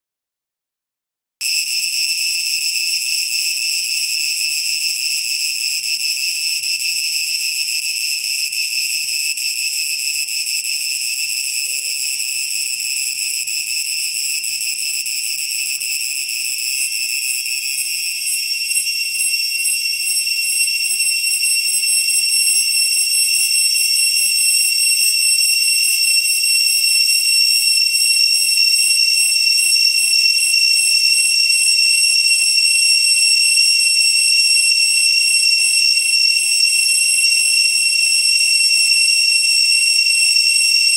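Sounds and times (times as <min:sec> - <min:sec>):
cicadas screaming: 0:02.2 - 0:14.4.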